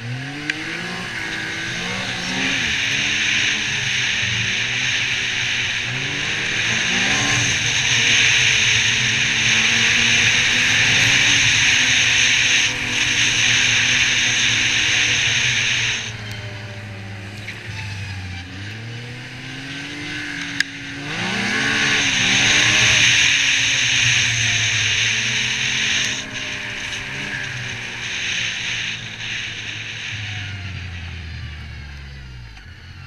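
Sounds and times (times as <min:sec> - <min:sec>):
snowmobile engine under throttle: 0:00.0 - 0:33.0
strong hiss: 0:01.4 - 0:16.8, 0:20.9 - 0:31.5.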